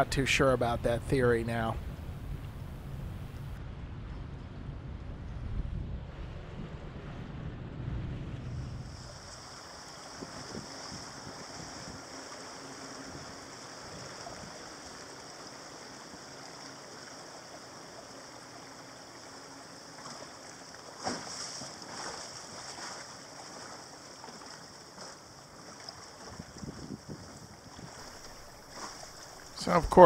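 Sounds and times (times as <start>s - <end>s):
water washing along a hull: 8.0s - 30.0s.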